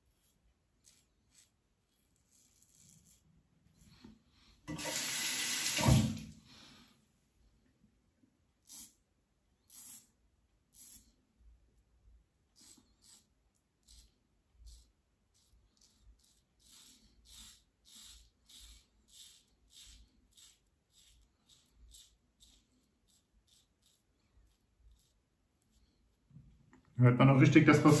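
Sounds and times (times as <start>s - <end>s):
razor scraping stubble: 0.0s - 3.3s, 12.5s - 26.1s, 27.4s - 28.0s.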